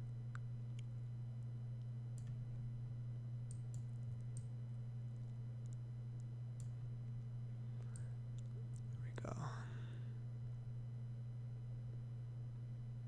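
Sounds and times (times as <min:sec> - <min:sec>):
steady low hum: 0:00.0 - 0:13.0
computer mouse clicks: 0:03.5 - 0:04.5, 0:06.6 - 0:06.8.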